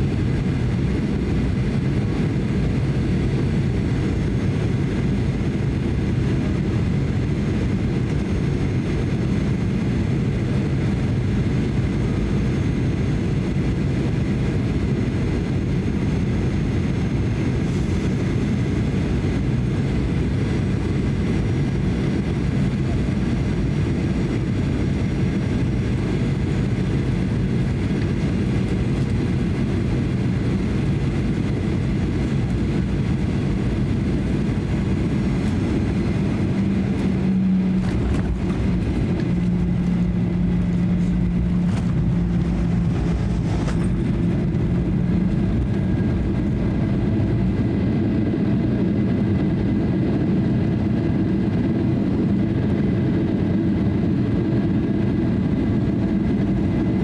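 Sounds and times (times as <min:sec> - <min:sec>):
faint steady whine: 0:00.0 - 0:50.9
jet engine rumble: 0:00.0 - 0:57.0
air rushing past fuselage: 0:34.2 - 0:47.4.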